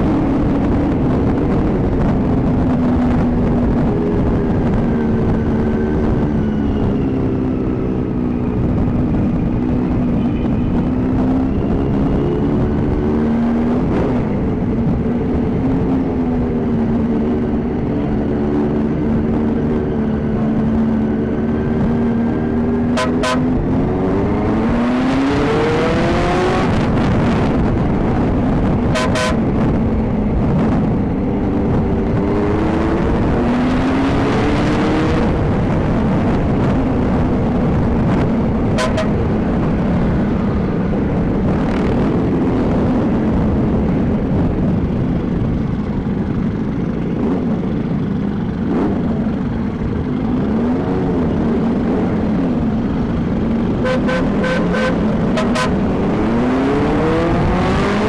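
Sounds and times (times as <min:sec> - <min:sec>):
motorcycle engine accelerating: 0:00.0 - 0:58.0
short horn beeps: 0:53.8 - 0:55.7.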